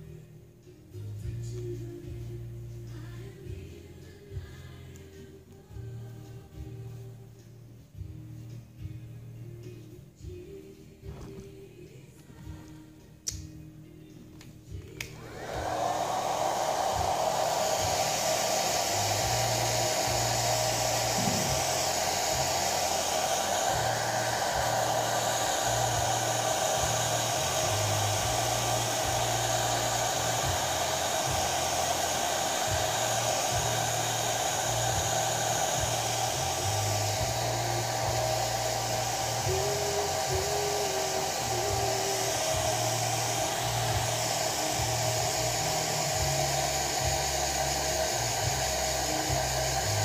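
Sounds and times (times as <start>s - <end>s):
hair dryer running: 14.7s - 50.0s
hair dryer switch click: 14.9s - 16.8s.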